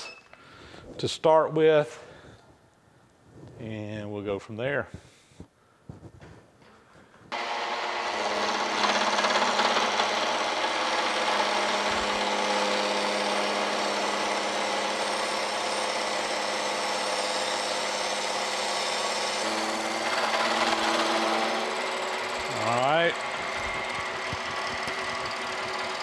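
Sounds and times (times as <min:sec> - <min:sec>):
cutter cutting metal: 0:07.4 - 0:26.0
milling machine whirring: 0:07.4 - 0:26.0.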